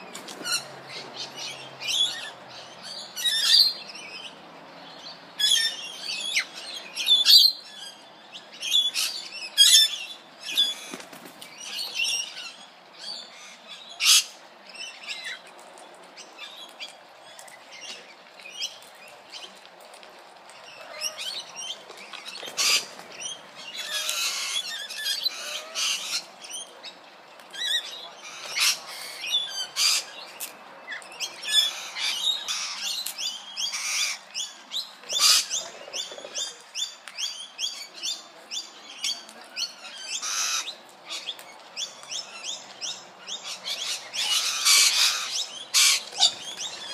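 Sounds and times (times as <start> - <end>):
parrots squawking and chirping: 22.5 - 23.0, 23.8 - 26.3, 35.2 - 35.6, 40.2 - 41.3, 43.4 - 46.9.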